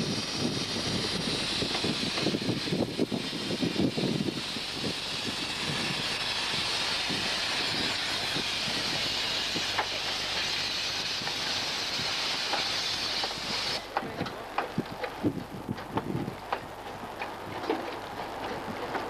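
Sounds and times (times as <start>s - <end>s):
steam hissing from locomotive: 0.0s - 14.1s.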